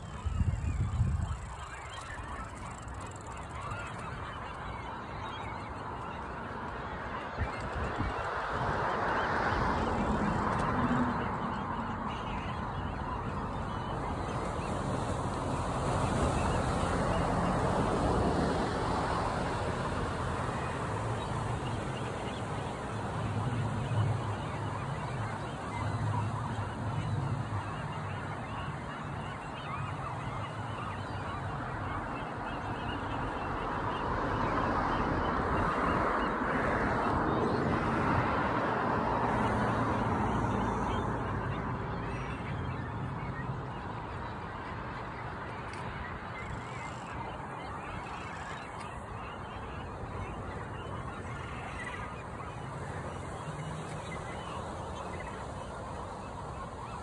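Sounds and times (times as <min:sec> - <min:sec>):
outdoor background noise: 0:00.0 - 0:57.0
seabirds honking and squawking: 0:00.0 - 0:57.0
faint bird calls: 0:39.2 - 0:57.0.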